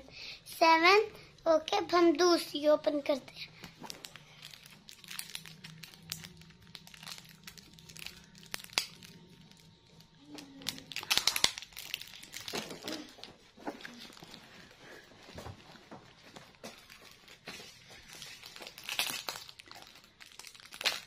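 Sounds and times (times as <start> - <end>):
plastic packet crinkling: 3.8 - 14.7, 16.5 - 21.0.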